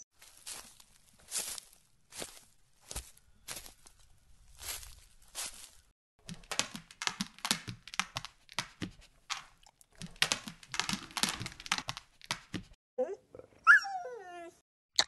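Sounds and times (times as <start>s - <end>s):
dog paws running: 4.6s - 12.8s.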